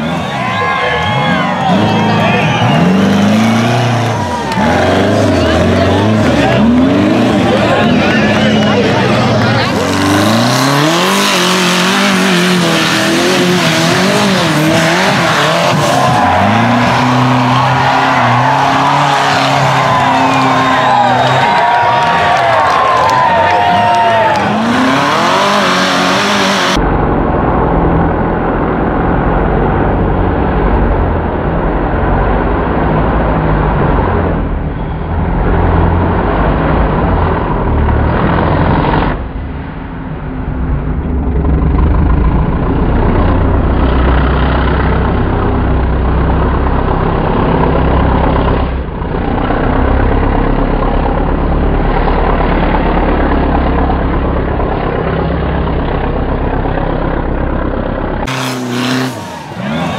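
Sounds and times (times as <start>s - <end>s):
engine revving hard: 1.0s - 26.8s, 58.2s - 59.9s.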